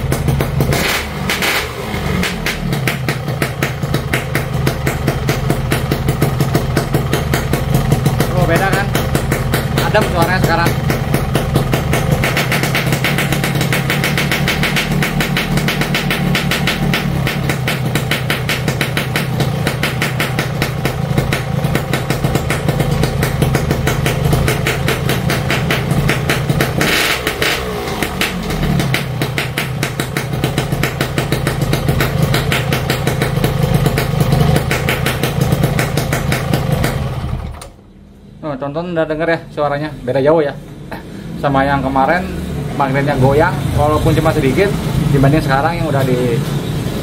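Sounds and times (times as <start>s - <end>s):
motorcycle engine idling: 0.0s - 37.7s, 40.9s - 46.8s.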